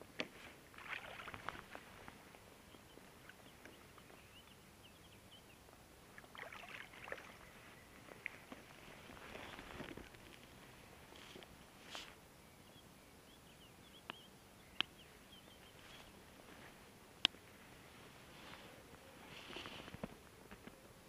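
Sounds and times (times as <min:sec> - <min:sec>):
water splashing and sloshing: 0:00.7 - 0:02.2, 0:06.2 - 0:10.4.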